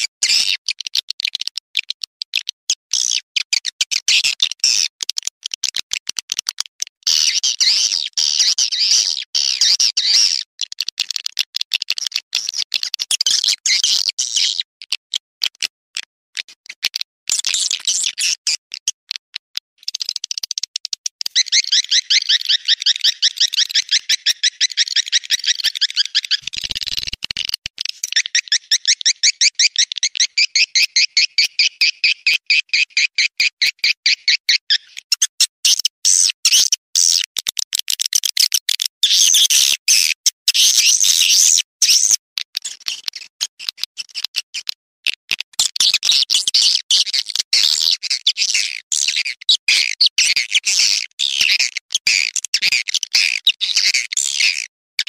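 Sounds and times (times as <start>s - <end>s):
swiftlet chirps and twittering: 21.3s - 33.0s.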